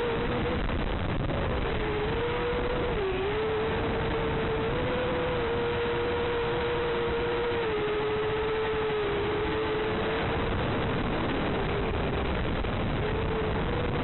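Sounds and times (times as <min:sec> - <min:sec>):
quadcopter motors buzzing: 0:00.0 - 0:14.0.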